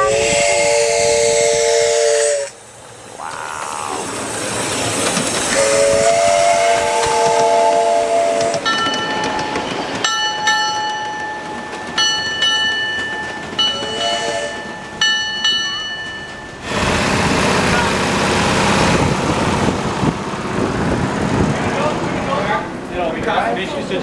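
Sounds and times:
steam locomotive chime whistle: 0:00.0 - 0:02.6, 0:05.5 - 0:16.6
steam hissing: 0:00.0 - 0:08.7
train wheels clicking on rails: 0:02.3 - 0:24.0.

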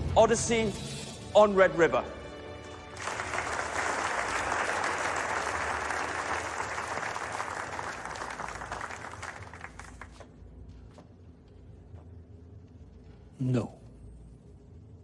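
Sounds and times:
small audience applauding: 0:02.7 - 0:10.5.

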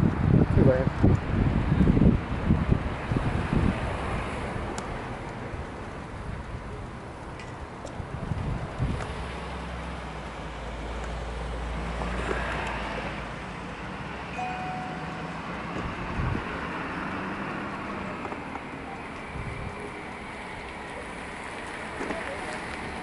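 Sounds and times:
vehicle and traffic noise: 0:00.0 - 0:23.0.

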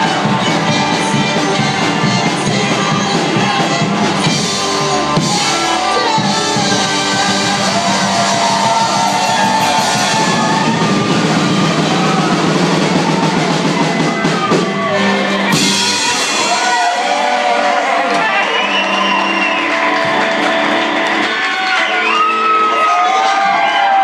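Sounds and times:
rock band playing: 0:00.0 - 0:24.0
trumpet melody: 0:02.4 - 0:18.4.

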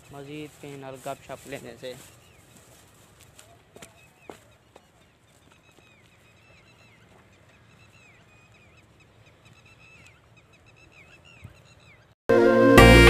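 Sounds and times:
higher bird chirps: 0:03.9 - 0:12.2.

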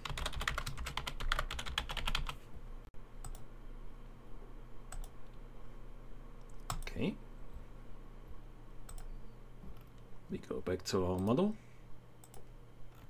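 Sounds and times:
computer keyboard typing: 0:00.0 - 0:02.4, 0:04.9 - 0:05.1.

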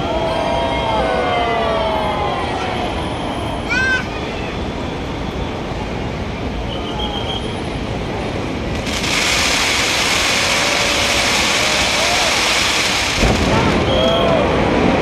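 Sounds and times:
fireworks bursting and crackling: 0:08.7 - 0:15.0
hiss of crackling sparks: 0:08.8 - 0:13.4.

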